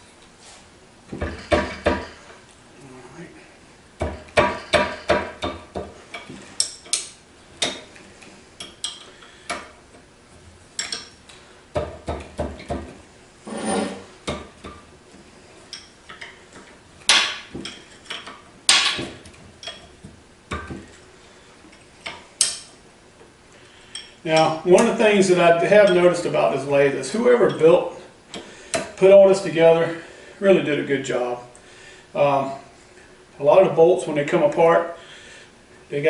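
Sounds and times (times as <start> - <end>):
wrench clinking on metal bolts: 8.6 - 9.6, 10.8 - 11.2, 17.1 - 19.9, 22.0 - 22.7
metal scrape: 13.4 - 14.1.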